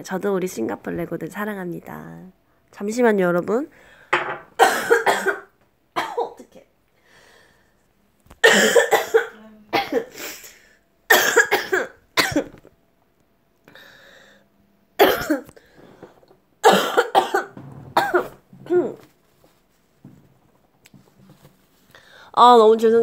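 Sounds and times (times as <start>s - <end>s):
woman coughing: 4.6s - 6.5s, 8.4s - 10.5s, 11.1s - 12.6s, 15.0s - 15.5s, 16.6s - 19.1s.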